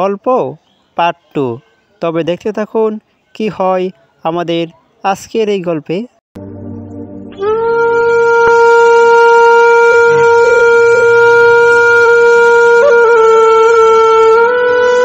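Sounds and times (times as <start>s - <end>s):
soft low drone: 6.4s - 12.8s
reedy wind instrument long note: 6.4s - 15.0s.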